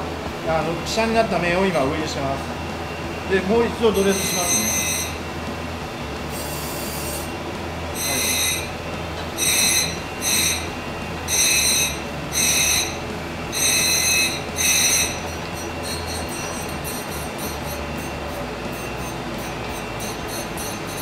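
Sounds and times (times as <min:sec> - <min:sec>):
grinding machine hum: 0:00.0 - 0:21.0
high-pitched grinding screeches: 0:03.8 - 0:05.2, 0:06.3 - 0:07.3, 0:07.9 - 0:08.8, 0:09.4 - 0:21.0.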